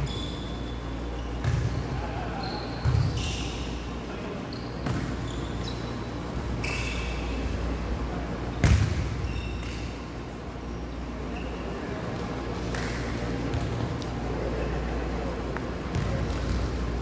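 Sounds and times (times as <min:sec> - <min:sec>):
sneakers squeaking on hardwood: 0:00.0 - 0:03.8, 0:04.5 - 0:07.2
volleyball thumps: 0:01.4 - 0:01.8, 0:08.6 - 0:09.8, 0:15.9 - 0:16.8.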